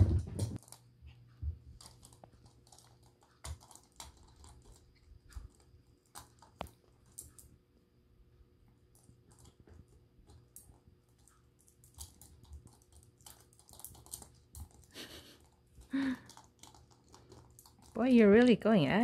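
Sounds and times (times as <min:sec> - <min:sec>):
puppy chewing plastic toy: 0:01.7 - 0:07.4, 0:09.3 - 0:18.4.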